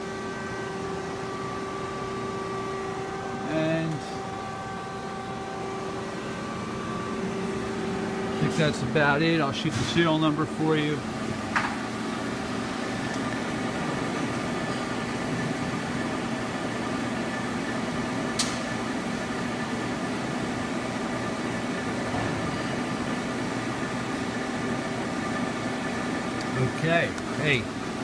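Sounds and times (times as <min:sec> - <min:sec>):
machinery humming: 0:00.0 - 0:28.0
sharp click: 0:18.4 - 0:18.6.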